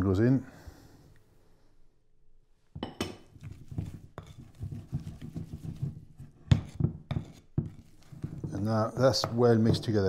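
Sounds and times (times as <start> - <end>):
spoon knocking in ceramic bowl: 2.8 - 5.7
scraping in bowl: 3.3 - 10.0.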